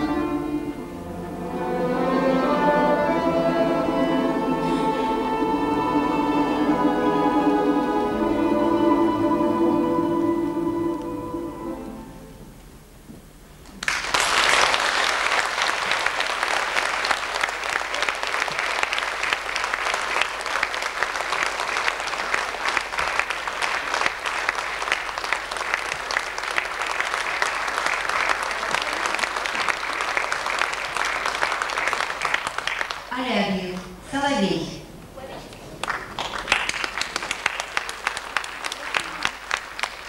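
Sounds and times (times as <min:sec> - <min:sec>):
orchestra sustained chord: 0:00.0 - 0:12.4
audience applause: 0:13.8 - 0:33.2, 0:35.8 - 0:40.0.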